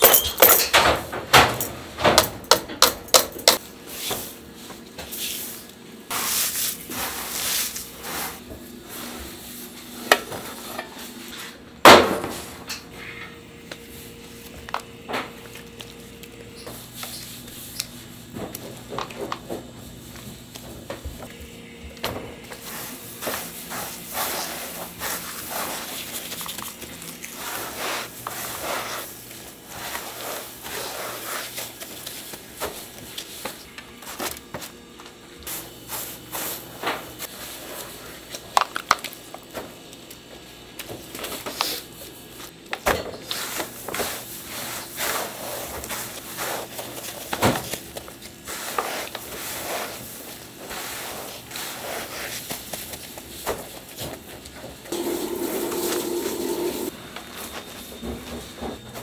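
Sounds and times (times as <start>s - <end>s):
steady drone: 54.9s - 56.9s.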